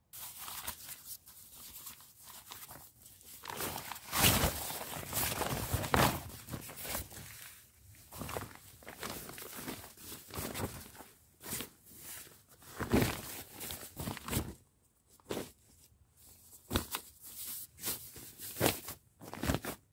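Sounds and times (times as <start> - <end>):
fabric bag rustling: 2.6 - 14.6.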